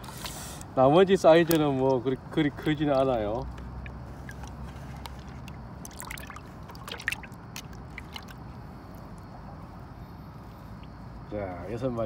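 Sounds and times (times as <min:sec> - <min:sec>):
water splashing in a bucket: 0:00.0 - 0:09.0
eels squirming in water: 0:00.0 - 0:09.3.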